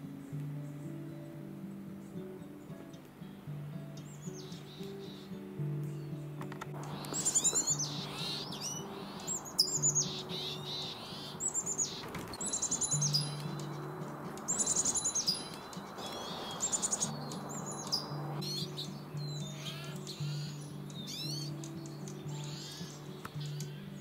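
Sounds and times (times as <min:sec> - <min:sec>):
soft background music: 0:00.0 - 0:24.0
songbirds chirping: 0:00.0 - 0:24.0.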